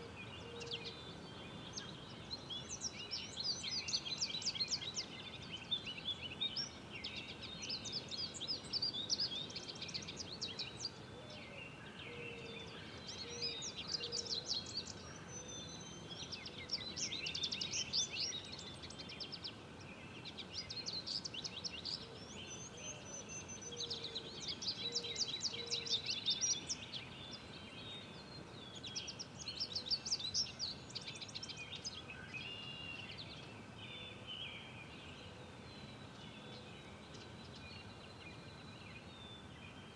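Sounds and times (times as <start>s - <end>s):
songbirds singing: 0.0s - 39.9s.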